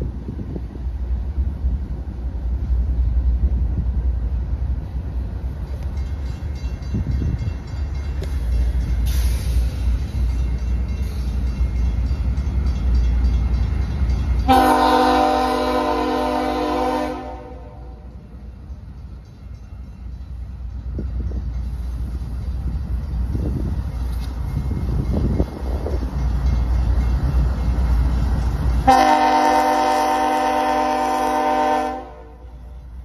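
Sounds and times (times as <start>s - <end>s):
diesel locomotive rumbling: 0.0s - 33.0s
locomotive horn blast: 14.4s - 18.1s, 28.8s - 32.6s.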